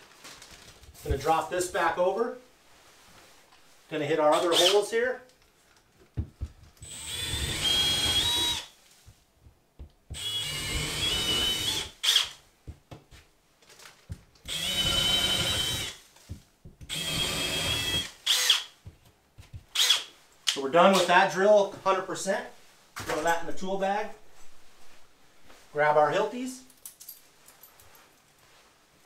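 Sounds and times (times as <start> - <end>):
power drill boring drywall: 4.3 - 4.9, 6.8 - 8.7, 10.2 - 12.4, 14.4 - 16.0, 16.9 - 18.7, 19.7 - 20.1.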